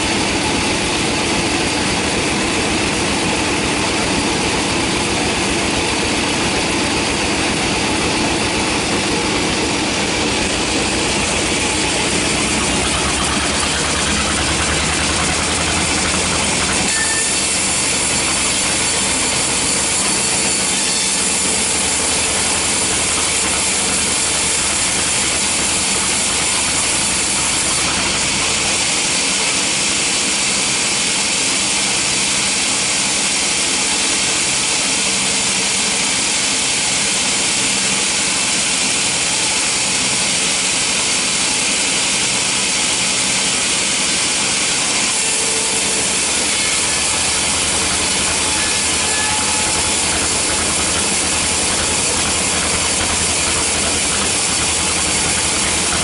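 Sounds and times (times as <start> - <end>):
low machine hum: 0.0 - 29.1, 44.8 - 56.0
saw blade cutting log: 0.0 - 56.0.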